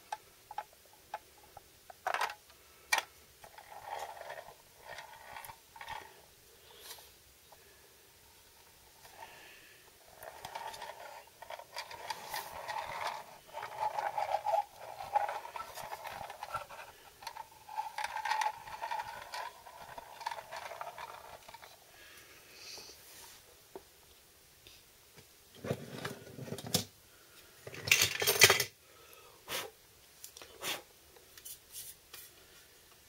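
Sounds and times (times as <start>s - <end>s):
toy truck wheels rolling on floor: 0.5s - 7.0s, 8.6s - 22.2s, 27.6s - 28.8s.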